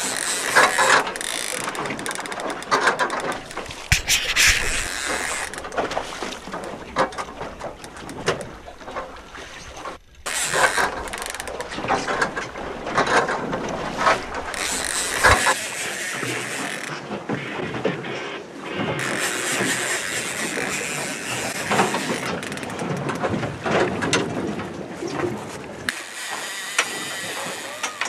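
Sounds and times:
fishing reel ratcheting: 0.0 - 3.4, 10.2 - 11.7, 14.5 - 16.9
wind on microphone: 3.4 - 6.2.

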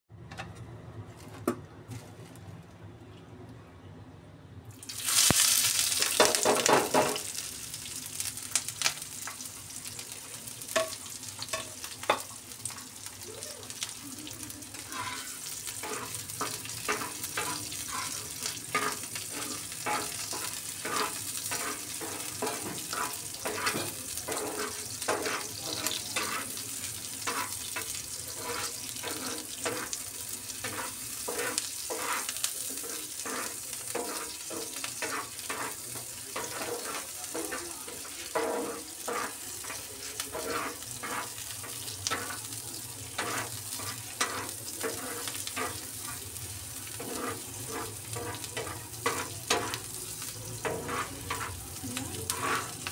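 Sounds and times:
onions sizzling in oil: 4.7 - 52.9
steel spatula scraping pan: 14.8 - 26.6, 27.2 - 30.0, 30.6 - 42.4, 43.2 - 46.2, 46.9 - 49.8, 50.6 - 51.6, 52.3 - 52.9.

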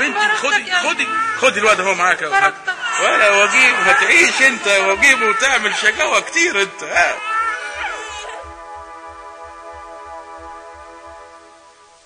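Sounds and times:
small child crying: 0.0 - 1.6, 2.6 - 6.3, 7.0 - 8.4
background music with low beat: 4.3 - 12.0.

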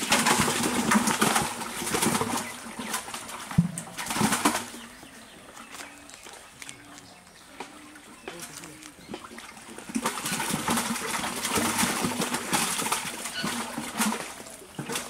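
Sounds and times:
fish splashing at water surface: 0.0 - 5.0, 8.3 - 15.0.

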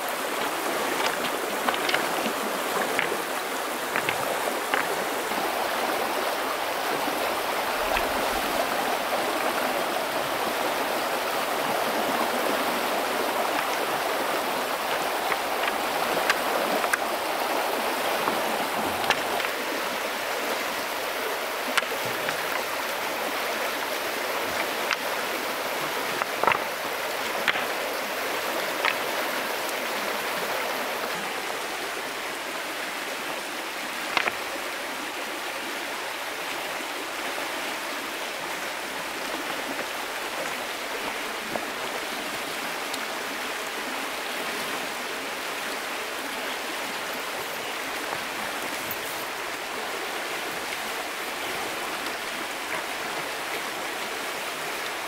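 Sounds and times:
stream water rushing over rapids: 0.0 - 55.0
river stones knocking together: 0.1 - 5.3, 13.6 - 17.5, 18.1 - 19.7, 21.6 - 22.9, 24.2 - 29.2, 34.0 - 34.6, 39.2 - 41.8, 47.9 - 49.5.

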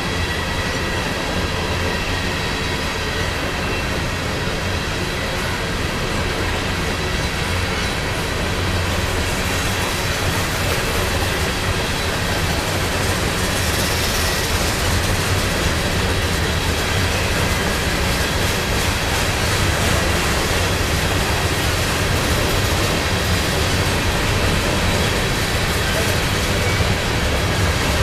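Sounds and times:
freight train wheels rumbling on rails: 0.0 - 28.0.

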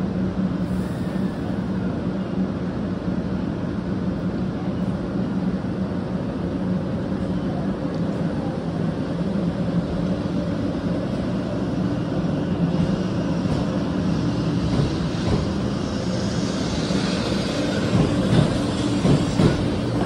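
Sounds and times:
train low hum: 0.0 - 20.0
train hiss: 0.6 - 2.0, 12.0 - 20.0.

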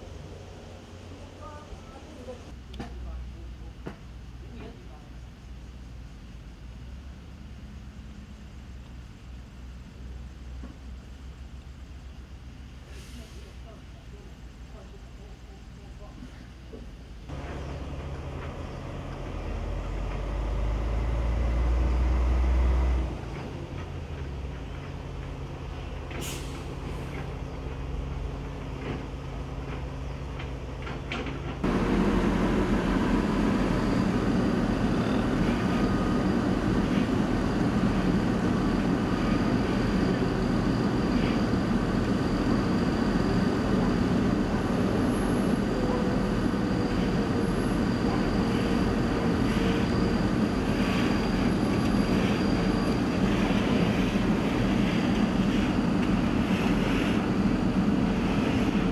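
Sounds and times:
diesel engines running: 15.8 - 58.9.

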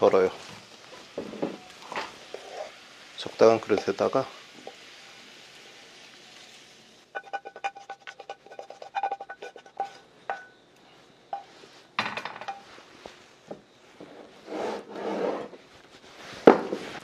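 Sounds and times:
spatula tapping metal wok: 3.7 - 4.0, 7.1 - 10.6
wok ringing: 7.1 - 10.7.

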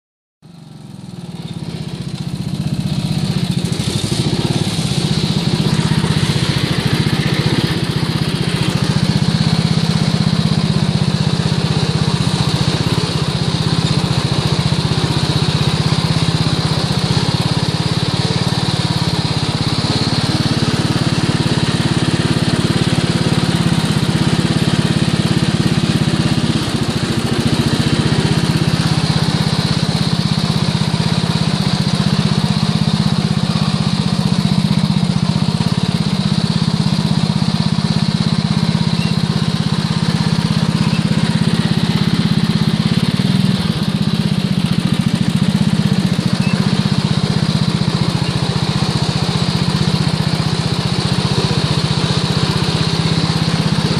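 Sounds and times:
lawn mower engine running: 0.4 - 53.9.

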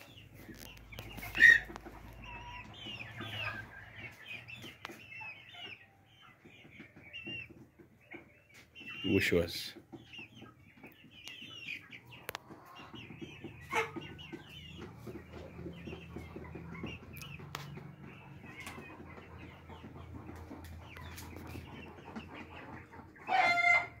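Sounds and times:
chicks clucking and cheeping: 0.0 - 24.0.

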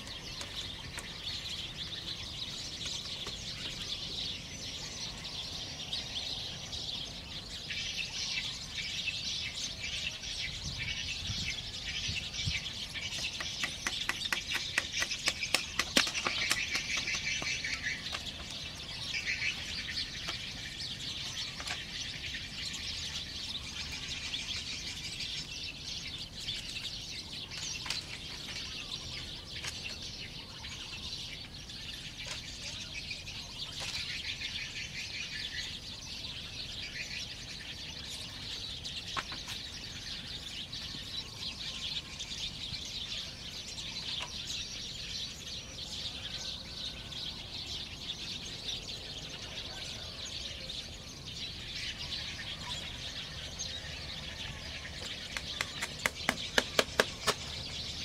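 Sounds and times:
birds chirping: 0.0 - 58.0
bamboo poles knocking: 13.2 - 17.6.

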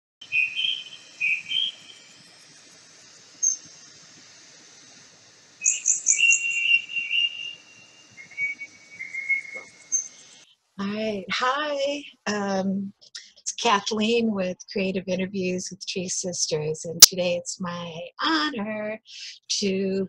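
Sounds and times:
birdsong: 0.2 - 2.5, 3.4 - 3.7, 5.6 - 10.4
high insect chorus: 0.2 - 10.4.

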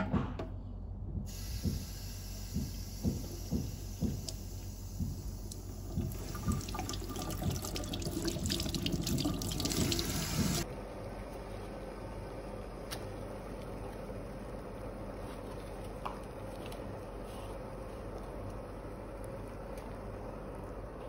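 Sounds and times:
water splashes and knocks: 5.0 - 10.6.

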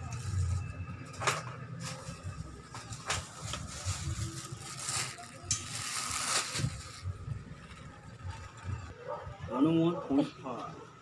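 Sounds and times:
handling rustle: 1.7 - 7.2.

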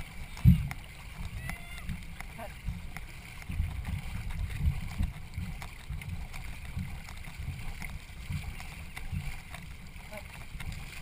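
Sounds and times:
faint water wash: 0.0 - 11.0
paddle strokes thumping: 0.0 - 11.0.

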